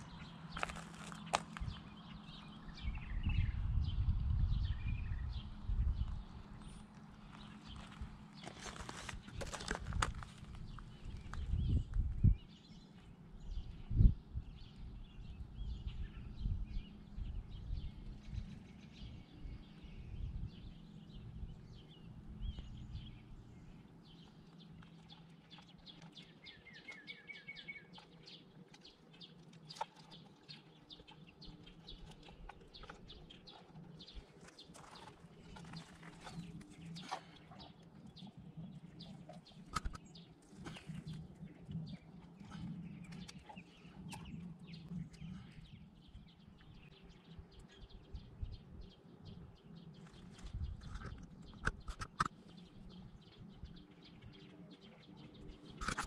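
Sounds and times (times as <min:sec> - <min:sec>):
wind and road noise: 0:00.0 - 0:25.8, 0:31.2 - 0:56.0
songbirds chirping: 0:00.0 - 0:56.0
bird trill: 0:14.6 - 0:37.8.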